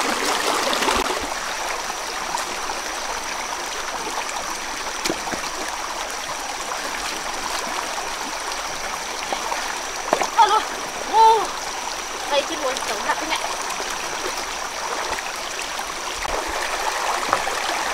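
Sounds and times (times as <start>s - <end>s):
water rushing over stones: 0.0s - 17.9s
stones knocking and splashing: 5.0s - 5.7s, 9.2s - 10.5s, 16.3s - 17.9s.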